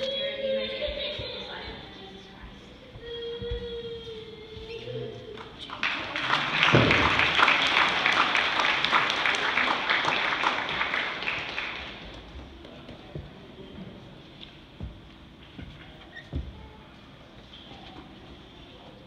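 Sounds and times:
crowd clapping: 5.4s - 12.3s.

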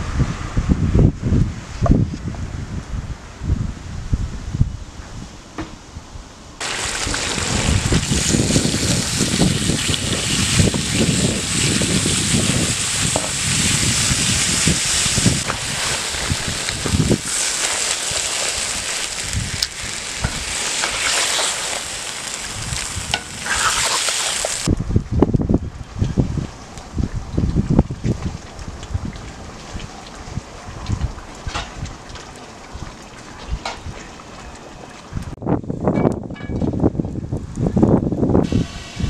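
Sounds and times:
food sizzling in hot oil: 6.6s - 24.7s.

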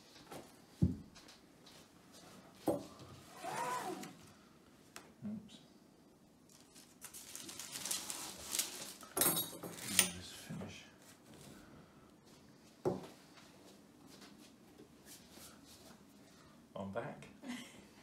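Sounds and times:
paper rustling: 6.5s - 10.0s.

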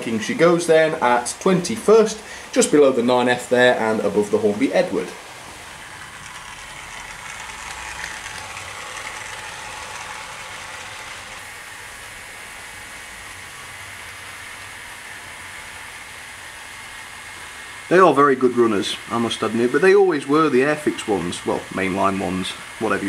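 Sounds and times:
model train motor whirring: 0.0s - 23.0s.

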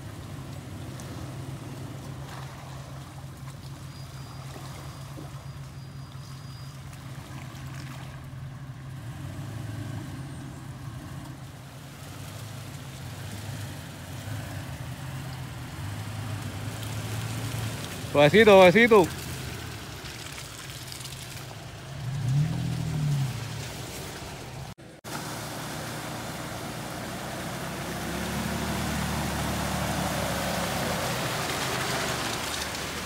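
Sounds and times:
truck engine running at low revs: 21.4s - 33.0s.

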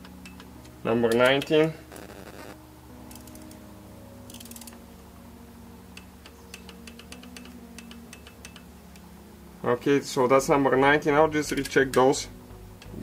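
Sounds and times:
torque wrench ratchet clicking: 3.1s - 3.6s, 4.3s - 4.8s.

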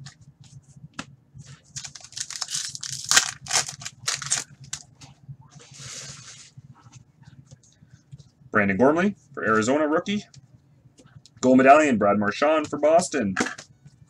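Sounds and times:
plastic wrapper crinkling: 1.7s - 4.8s.

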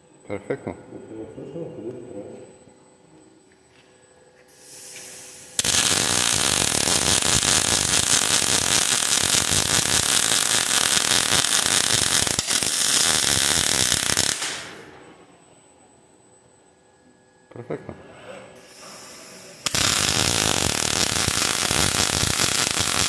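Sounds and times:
welding torch hiss: 4.5s - 14.8s, 18.6s - 23.0s
welding arc crackling: 4.6s - 14.9s, 18.6s - 23.0s.

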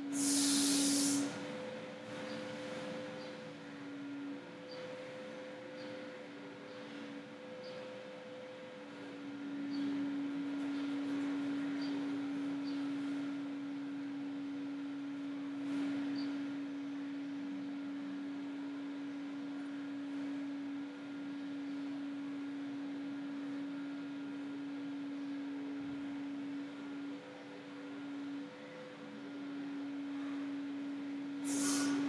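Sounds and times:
faint hiss: 0.0s - 1.4s, 31.4s - 32.0s
steady low hum: 0.0s - 32.0s.

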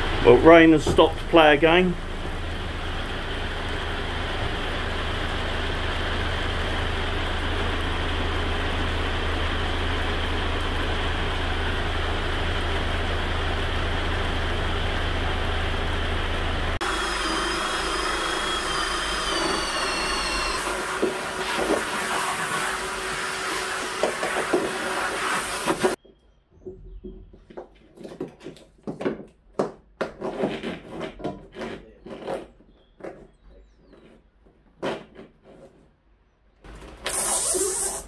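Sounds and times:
power tool whining: 16.8s - 26.0s
handling knocks and rustles: 26.0s - 36.0s.

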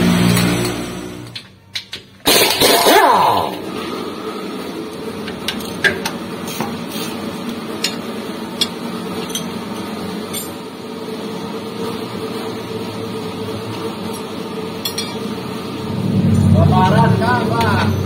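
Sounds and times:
steady hum: 10.3s - 18.0s.

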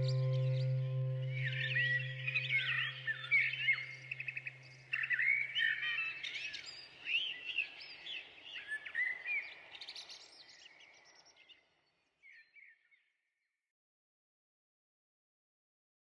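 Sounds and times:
thrush repeated notes: 0.0s - 3.0s
low steady hum: 0.0s - 4.2s.

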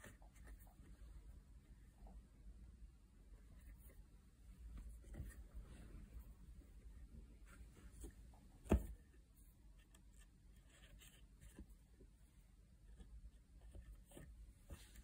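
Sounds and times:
needle and thread rustling through cloth: 3.4s - 8.8s.

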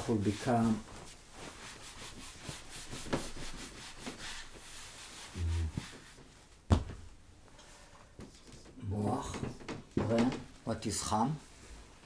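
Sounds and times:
eraser scraping whiteboard: 1.5s - 6.2s
man humming: 5.4s - 5.8s.

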